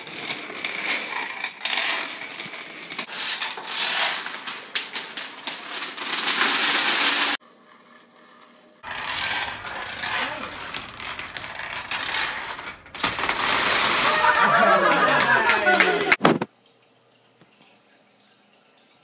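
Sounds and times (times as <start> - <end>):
dominoes clattering: 0.0 - 15.7
domino clatter through laptop speaker: 8.8 - 15.2.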